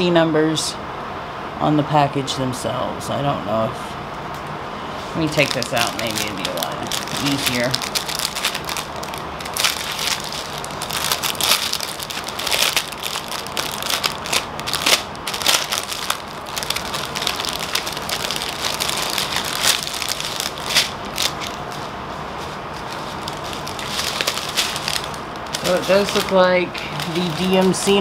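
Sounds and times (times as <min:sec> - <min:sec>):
plastic packaging crinkling: 0:05.2 - 0:28.0.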